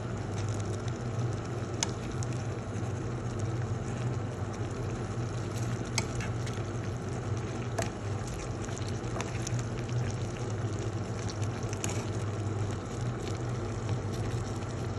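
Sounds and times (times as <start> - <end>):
steady low hum: 0.0 - 14.9
sauce bubbles popping: 0.2 - 14.9.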